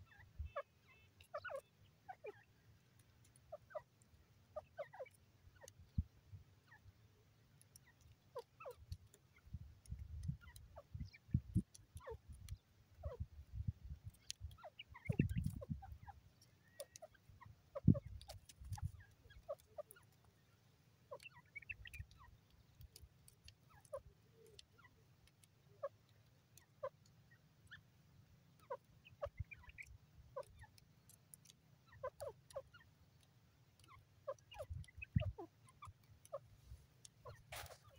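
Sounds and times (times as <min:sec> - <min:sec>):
bird clucking and chirping: 0:00.0 - 0:37.9.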